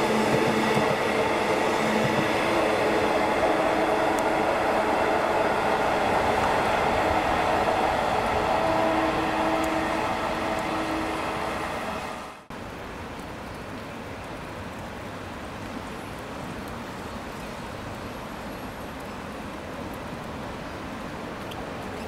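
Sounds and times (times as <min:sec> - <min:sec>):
rain falling: 0:00.0 - 0:22.0.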